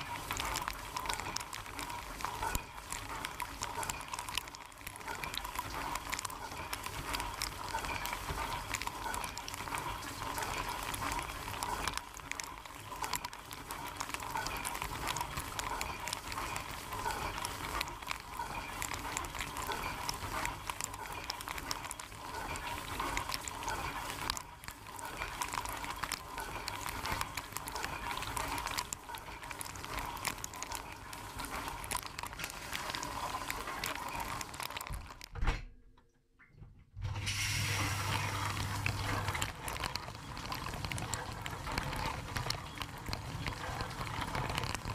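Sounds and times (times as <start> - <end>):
water spraying in dishwasher: 37.0 - 39.4.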